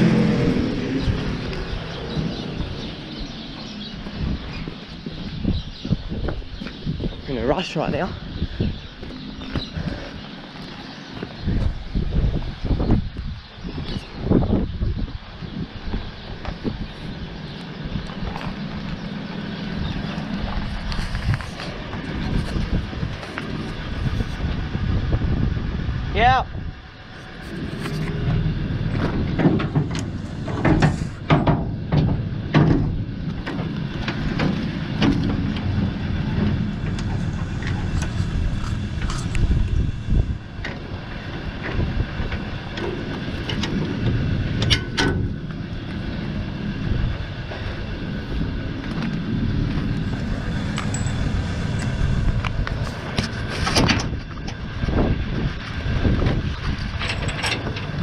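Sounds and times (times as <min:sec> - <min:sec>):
steady low rumble: 0:00.0 - 0:58.0
metal clanks of trailer coupling: 0:28.2 - 0:39.4, 0:41.6 - 0:45.6, 0:56.8 - 0:58.0.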